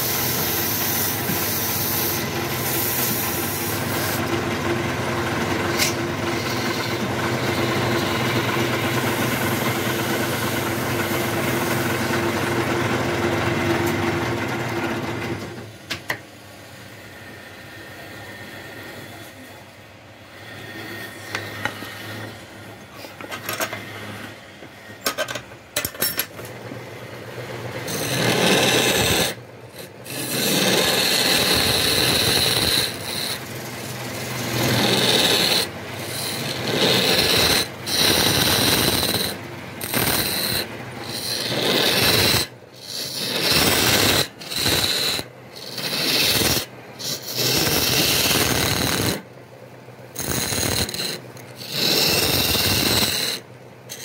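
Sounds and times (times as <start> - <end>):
lathe tool cutting wood: 0.0 - 15.3, 27.8 - 49.2, 50.2 - 54.0.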